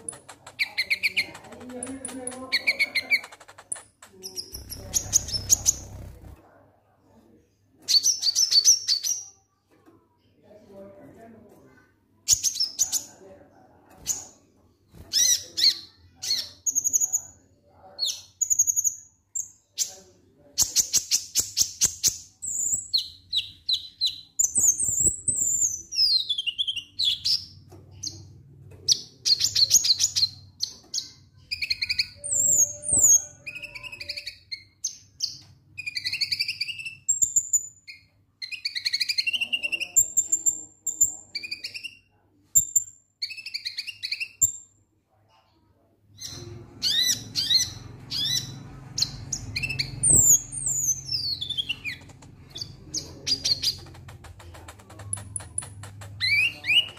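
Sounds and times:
fast rattling bird trill: 0.0s - 6.2s
bird chirping and twittering: 0.0s - 6.4s, 7.9s - 9.3s, 20.6s - 44.6s, 46.1s - 56.9s.

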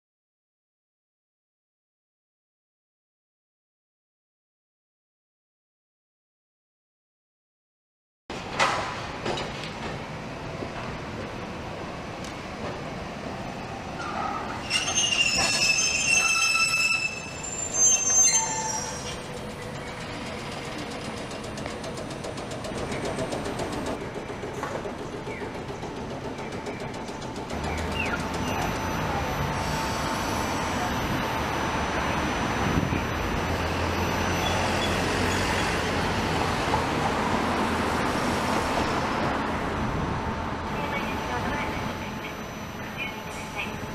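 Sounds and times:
city traffic rumble: 8.3s - 43.9s
street background: 8.3s - 43.9s
tram wheels squealing on rails: 13.8s - 37.3s, 40.8s - 43.9s.

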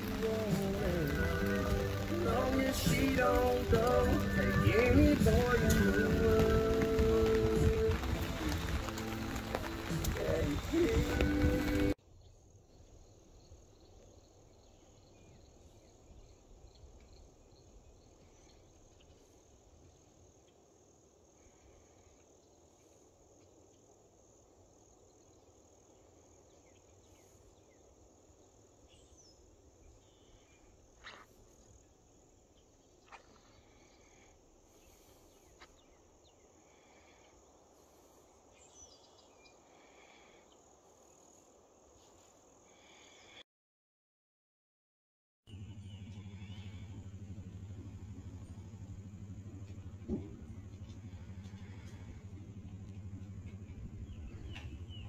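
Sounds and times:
repeated ticks: 0.0s - 12.0s
insects trilling: 0.0s - 43.4s, 45.5s - 55.0s
wind rumble on microphone: 0.2s - 12.0s, 45.8s - 55.0s
bird chirps: 45.5s - 55.0s.

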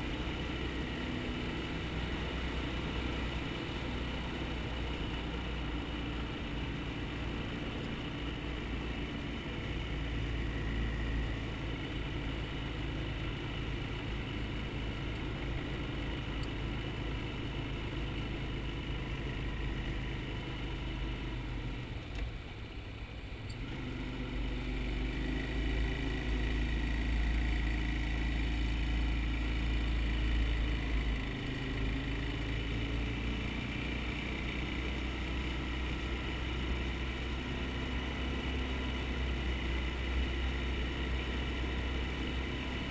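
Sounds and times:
quad bike engine running: 0.0s - 42.9s.

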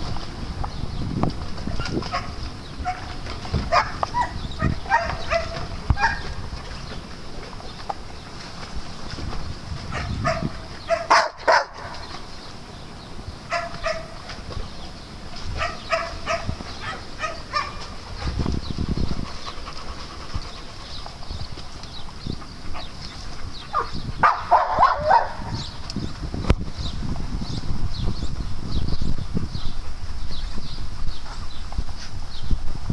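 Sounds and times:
dogs barking and yipping: 1.8s - 6.4s, 9.8s - 12.2s, 13.4s - 14.4s, 15.4s - 18.5s, 22.2s - 25.7s.

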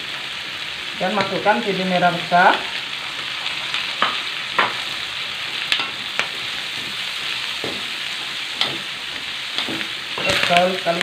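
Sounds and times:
food sizzling in oil: 0.0s - 11.0s
metal spatula scraping wok: 8.5s - 11.0s.

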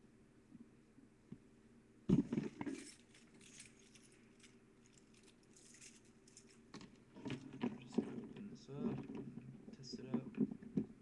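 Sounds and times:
light clicks and clinks: 2.6s - 8.1s.

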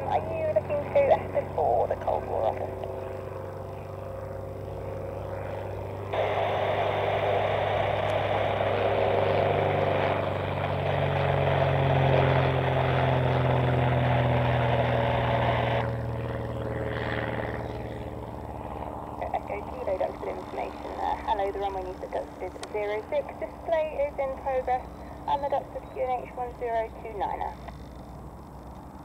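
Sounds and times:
propeller plane engine droning: 0.0s - 29.0s
harsh rushing noise: 6.1s - 12.1s.

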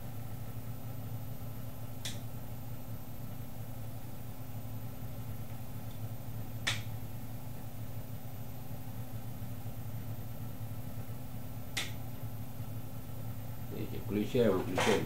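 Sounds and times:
switch clicks: 11.8s - 12.0s.

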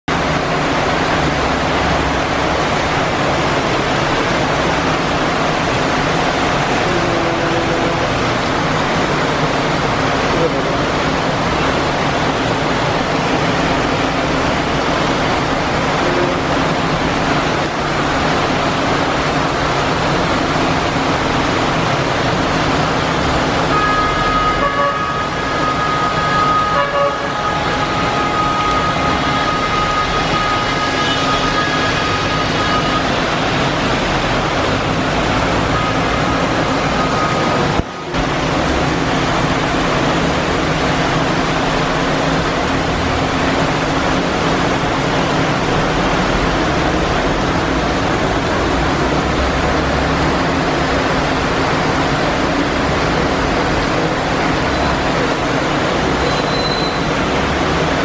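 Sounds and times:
heavy rain and floodwater rushing: 0.0s - 58.0s
car engines driving through water: 0.1s - 58.0s
vehicle horn long note: 6.8s - 8.3s, 16.0s - 16.6s, 23.7s - 33.4s, 56.2s - 57.1s
short horn beeps: 23.7s - 33.4s, 56.2s - 57.2s.

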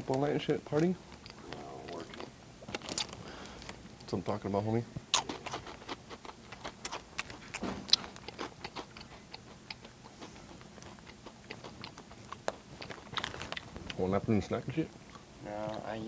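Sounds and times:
chips chewed loudly: 5.1s - 14.0s.

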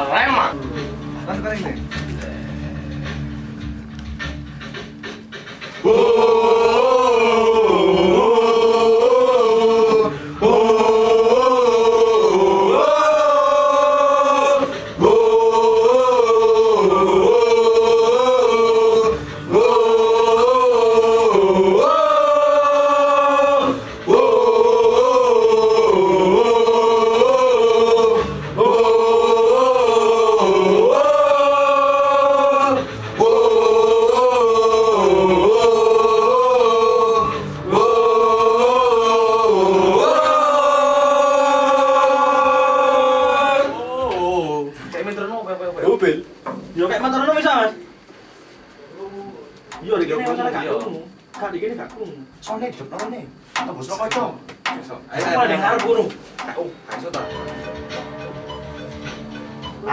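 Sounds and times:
men singing a chant in unison: 5.8s - 44.8s.

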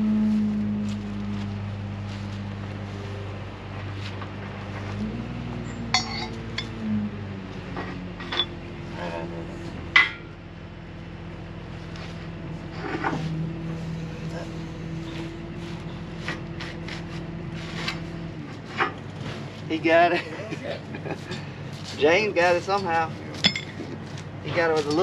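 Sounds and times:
engine running: 0.0s - 25.0s
hand tools clinking on metal: 5.9s - 6.8s, 8.2s - 8.6s, 22.6s - 23.9s.

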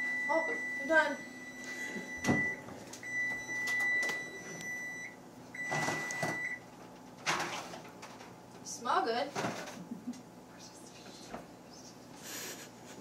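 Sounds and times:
oven timer beeping: 0.0s - 6.7s.

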